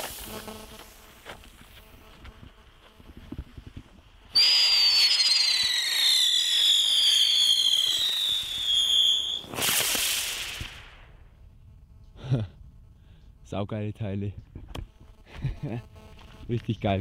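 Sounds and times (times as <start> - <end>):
firework spinner whistling: 0.0 - 2.1, 3.0 - 11.2
firework hiss: 0.0 - 11.3.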